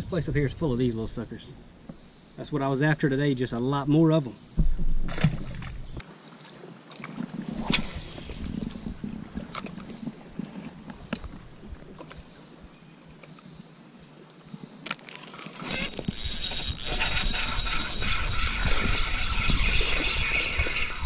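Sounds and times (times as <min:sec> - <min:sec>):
soft clicks and taps of fishing reel: 0:10.8 - 0:11.4, 0:13.2 - 0:13.5, 0:14.8 - 0:19.2.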